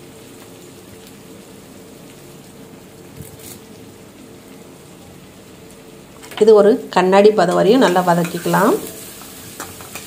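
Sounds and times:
onions sizzling in hot oil: 0.0s - 10.0s.

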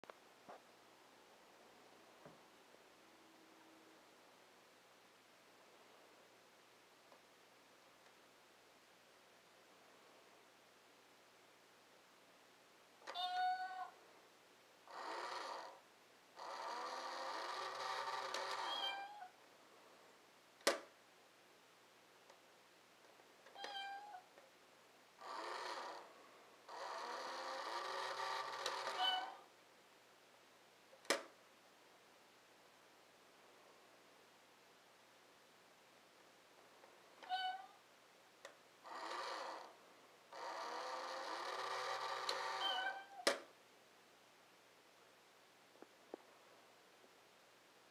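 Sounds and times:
cat meowing: 13.0s - 14.0s, 18.6s - 19.4s, 23.6s - 24.3s, 28.9s - 29.5s, 37.2s - 37.8s, 42.5s - 43.3s
toy cat meow: 13.0s - 14.0s, 16.4s - 19.4s, 23.5s - 24.3s, 26.7s - 29.5s, 37.2s - 37.8s, 40.3s - 43.3s
small motor whirring: 26.7s - 29.0s.

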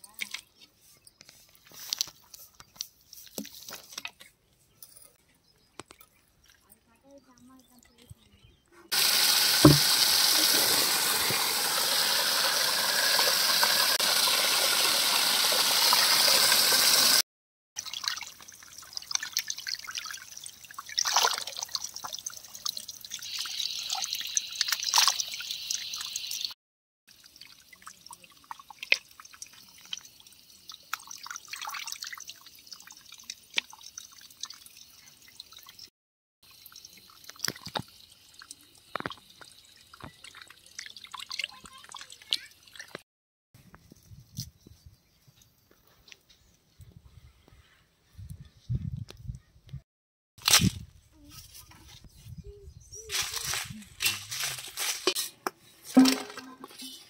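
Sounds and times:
water pouring into a bowl: 8.9s - 17.2s, 17.8s - 43.0s
water splashing and dripping: 8.9s - 17.2s, 17.8s - 43.0s, 55.9s - 57.0s.

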